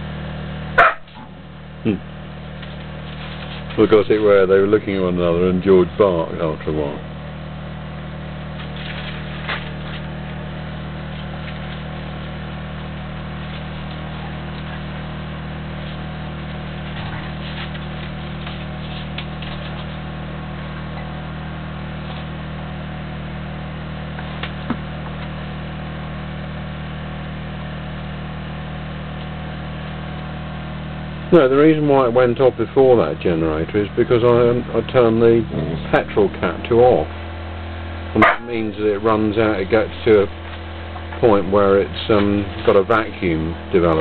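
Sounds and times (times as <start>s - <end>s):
generator running: 0.0s - 44.0s.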